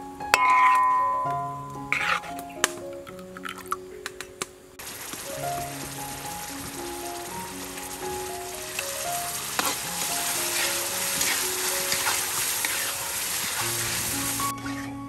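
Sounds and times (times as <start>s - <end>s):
soft background music: 0.0s - 15.0s
liquid boiling and sizzling in a wok: 4.8s - 14.9s
spatula scraping and knocking on pan: 9.5s - 12.9s.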